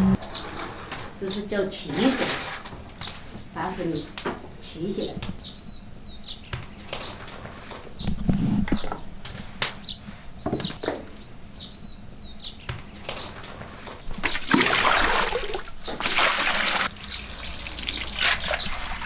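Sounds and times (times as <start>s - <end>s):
bird chirps: 5.0s - 7.2s, 9.8s - 13.4s, 17.0s - 17.3s
water sloshing and pouring: 14.2s - 19.0s.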